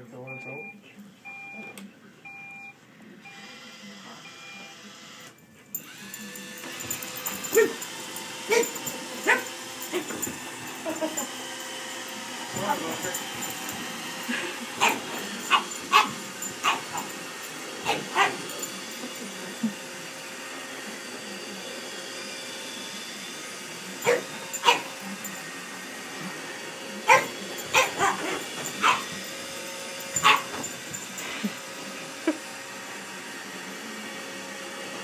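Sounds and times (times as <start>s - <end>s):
robot vacuum whirring: 3.5s - 33.5s
dog barking: 7.5s - 7.9s, 8.5s - 10.2s, 14.8s - 17.2s, 17.8s - 18.7s, 24.0s - 25.0s, 27.0s - 29.2s, 30.2s - 30.6s.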